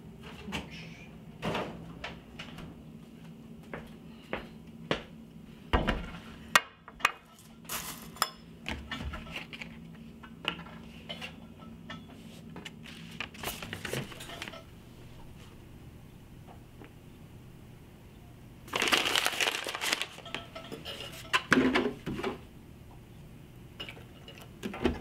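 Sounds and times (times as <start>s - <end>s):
dishes and cutlery clinking: 7.0s - 8.5s, 11.1s - 12.2s, 13.9s - 14.7s, 20.2s - 21.9s
paper rustling: 12.8s - 14.5s, 18.7s - 20.2s.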